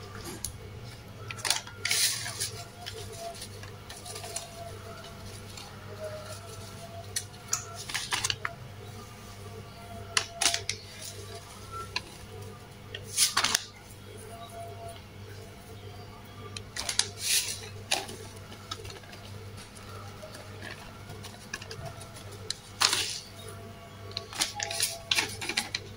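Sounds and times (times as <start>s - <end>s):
steady low hum: 0.0s - 25.9s
plastic sachet crinkling: 1.3s - 8.5s, 16.8s - 23.5s, 24.1s - 25.9s.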